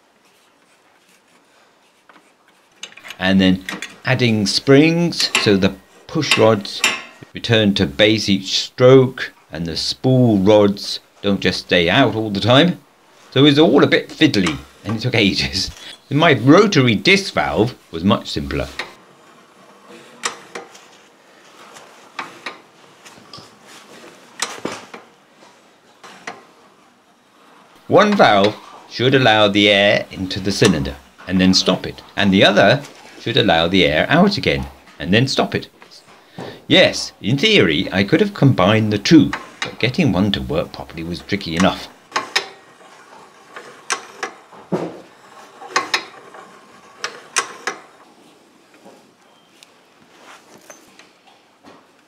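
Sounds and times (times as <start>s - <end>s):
sharp metal clicks of cams: 41.6s - 42.9s, 43.5s - 44.5s, 45.3s - 48.1s.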